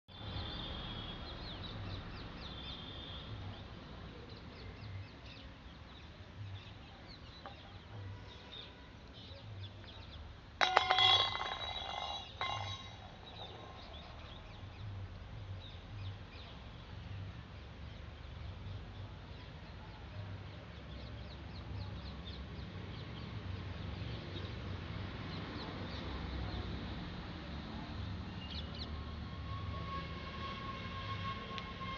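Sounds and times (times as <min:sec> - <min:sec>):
birds chirping: 0:00.1 - 0:24.6.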